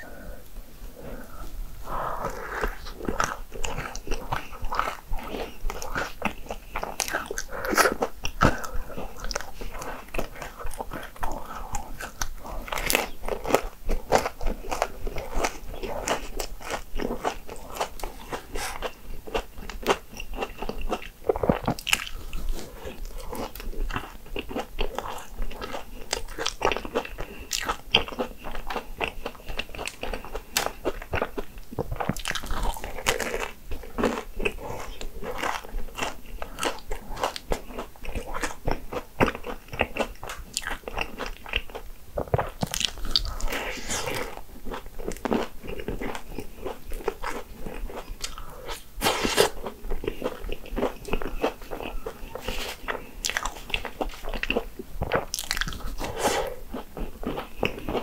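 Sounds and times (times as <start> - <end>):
crisp bites and chewing: 27.6 - 48.4.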